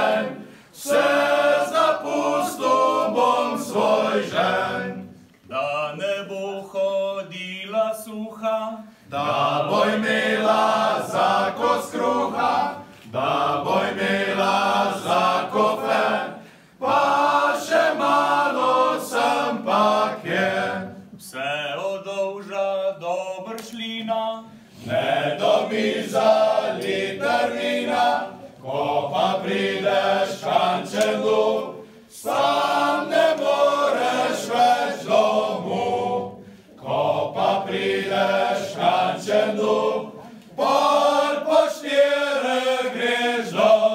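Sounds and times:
male vocal ensemble singing: 0.0 - 43.9.

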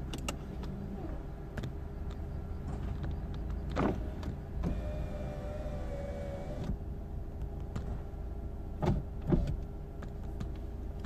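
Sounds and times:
car low rumble: 0.0 - 11.0
electric window motor whining: 4.6 - 6.8.

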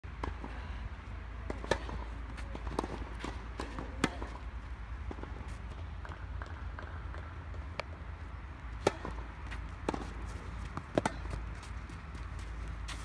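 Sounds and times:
racket hitting tennis ball: 1.4 - 4.4, 8.8 - 11.6
tennis ball bouncing: 1.4 - 8.0, 8.7 - 12.8
shoes scuffing on clay: 9.5 - 13.0.

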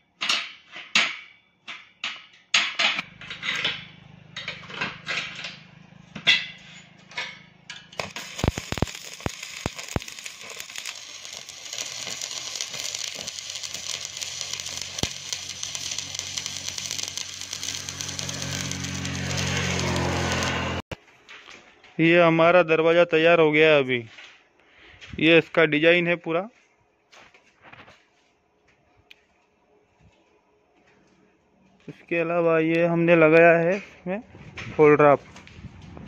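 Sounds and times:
hammer striking steel: 0.3 - 10.2
low hum: 6.6 - 20.8
welding arc crackling and hissing: 8.0 - 21.0.

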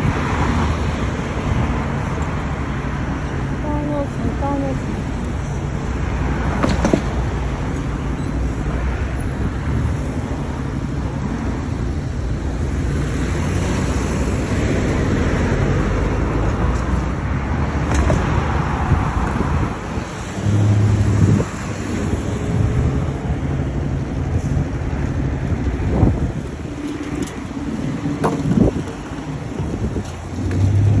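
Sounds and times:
traffic rumble of passing cars: 0.0 - 31.0.

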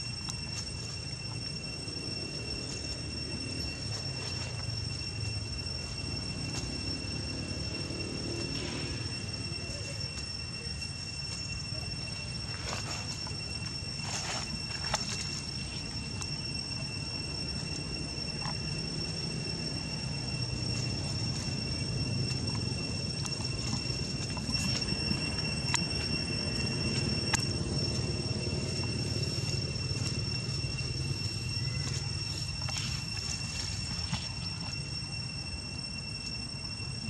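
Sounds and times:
dry leaves rustling: 0.0 - 37.0
high-pitched insect drone: 0.0 - 37.0.

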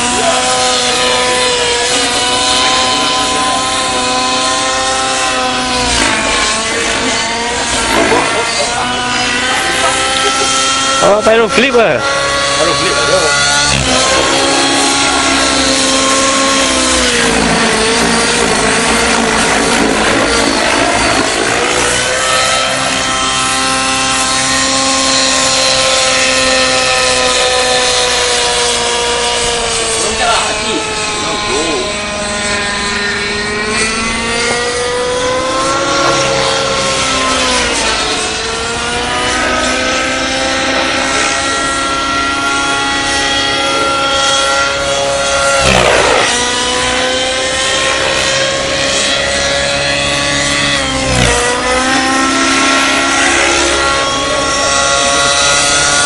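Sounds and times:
model helicopter engine whine: 0.0 - 56.0.

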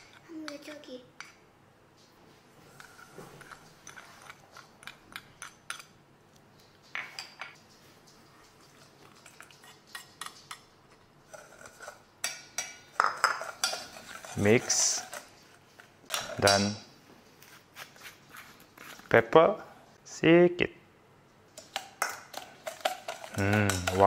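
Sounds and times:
metal spoon clinking on steel bowl: 11.4 - 15.2, 21.6 - 24.0.

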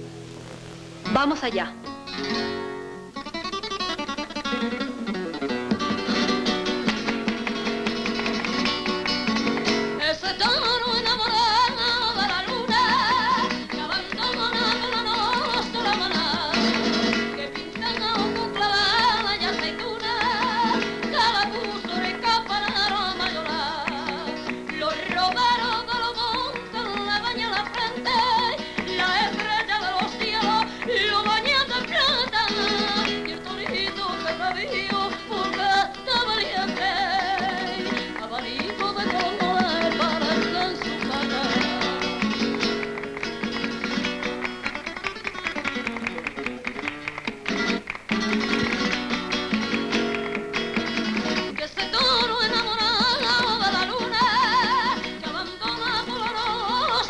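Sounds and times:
flamenco guitar: 0.0 - 57.0
ornamented singing voice: 10.0 - 42.6, 51.6 - 57.0.

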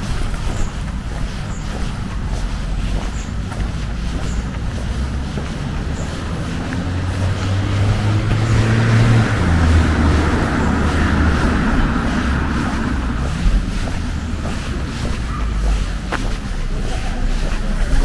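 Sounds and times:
vehicle driving past: 4.2 - 16.4.

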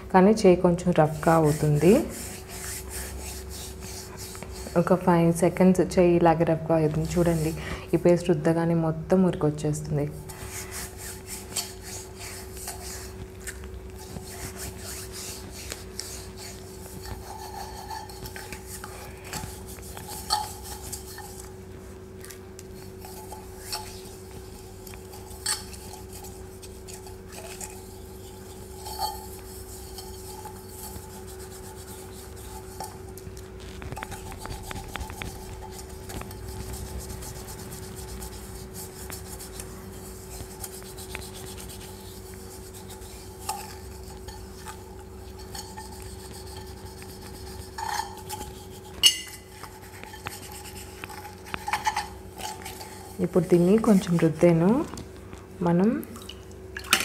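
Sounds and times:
rubbing and scraping on metal: 1.0 - 5.0, 10.3 - 21.5, 22.8 - 53.5.

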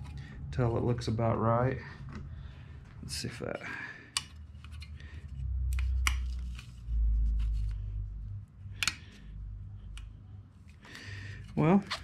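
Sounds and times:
low rumble: 0.0 - 3.6, 5.0 - 10.6.

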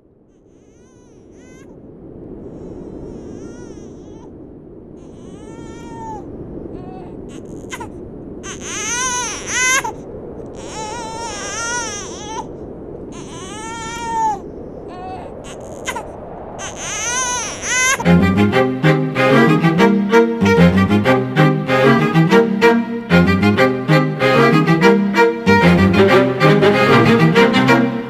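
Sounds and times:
baby crying: 0.6 - 1.7, 2.6 - 4.3, 5.0 - 12.5, 13.1 - 20.7.

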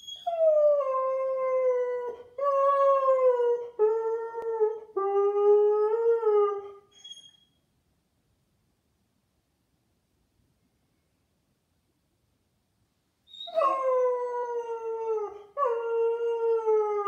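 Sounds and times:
dog whining: 6.3 - 7.5, 13.3 - 17.0.

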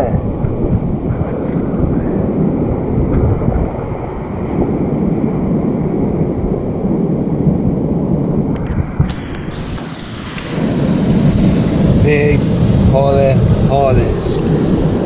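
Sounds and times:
surf washing on shore: 0.0 - 15.0
wind buffeting microphone: 0.0 - 15.0.

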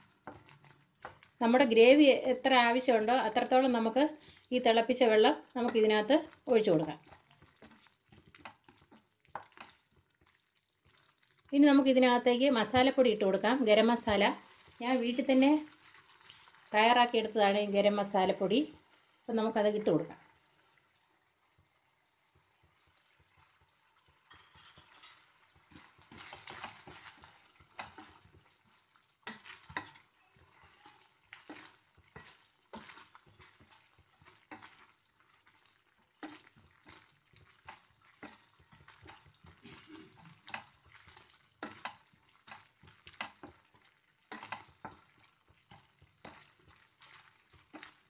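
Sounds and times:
spatula scraping a pan: 0.0 - 1.4, 7.0 - 11.2, 22.6 - 48.0.

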